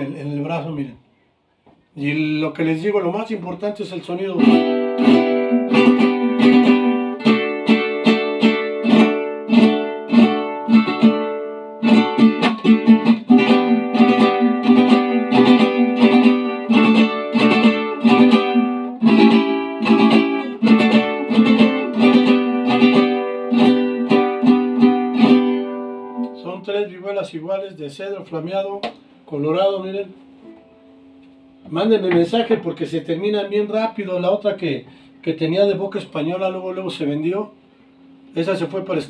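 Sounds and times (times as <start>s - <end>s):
guitar strummed rhythmically: 4.1s - 26.6s.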